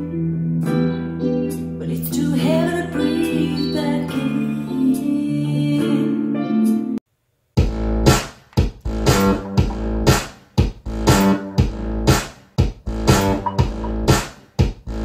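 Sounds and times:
guitar-led song over speakers: 0:00.0 - 0:07.0, 0:13.2 - 0:14.1
music with heavy beats and bass: 0:07.6 - 0:15.0.

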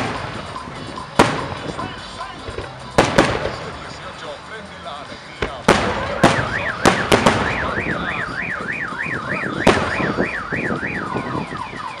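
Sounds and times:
fireworks bursting with bangs: 0:00.0 - 0:04.0, 0:05.4 - 0:11.2
car alarm siren warbling: 0:06.2 - 0:12.0.

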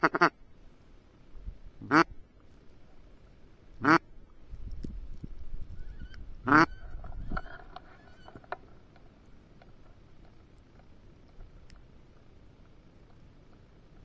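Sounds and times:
duck quacking: 0:00.0 - 0:00.4, 0:01.8 - 0:02.1, 0:03.8 - 0:04.0, 0:06.4 - 0:06.8
faint short calls: 0:05.7 - 0:08.8.

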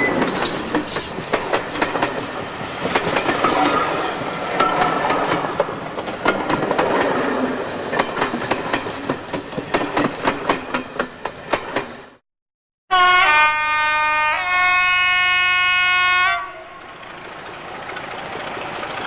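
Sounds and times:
train wheels clattering over rail joints: 0:00.0 - 0:12.2.

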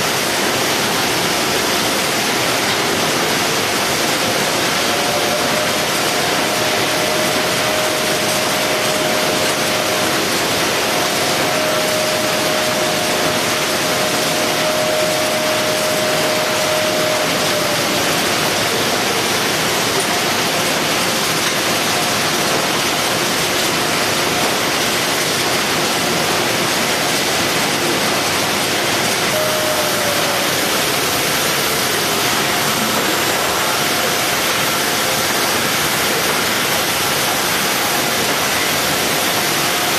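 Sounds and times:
factory machinery hissing: 0:00.0 - 0:39.9.

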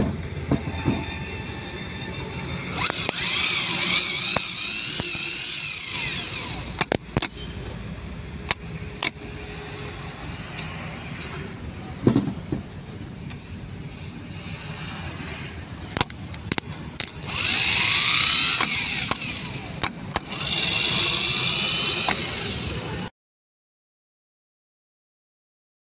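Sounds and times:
starter motor whining: 0:02.2 - 0:07.8, 0:14.3 - 0:23.1.

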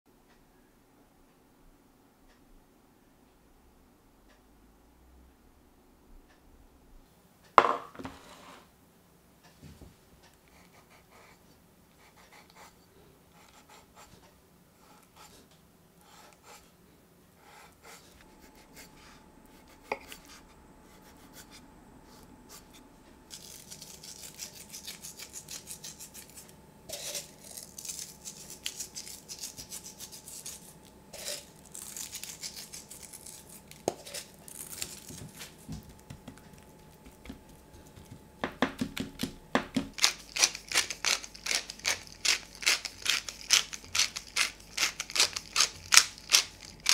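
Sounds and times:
knife scraping on meat: 0:17.4 - 0:35.7, 0:40.0 - 0:46.9
pepper mill grinding clicks: 0:39.9 - 0:46.9
salt crackling as sprinkled: 0:39.9 - 0:46.9.

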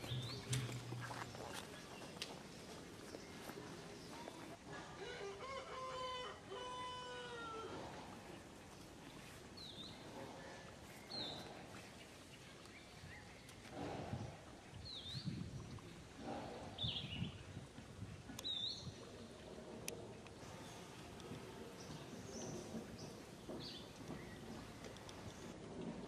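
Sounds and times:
rooster crowing: 0:05.0 - 0:07.7.

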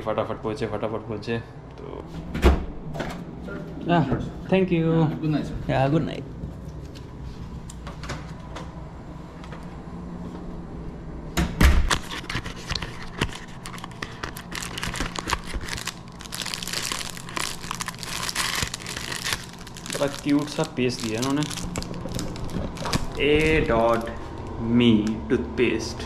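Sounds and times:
plastic wrapping crinkling: 0:11.9 - 0:24.6.

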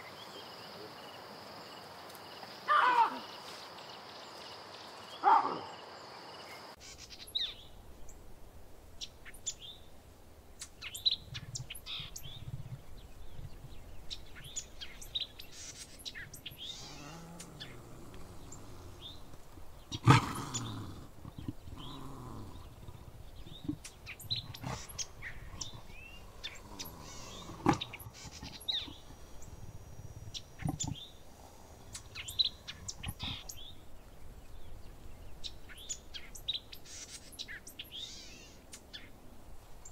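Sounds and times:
birds chirping: 0:00.0 - 0:08.3, 0:08.9 - 0:39.9
loud animal call: 0:16.6 - 0:19.3, 0:19.9 - 0:23.0, 0:23.6 - 0:33.6.

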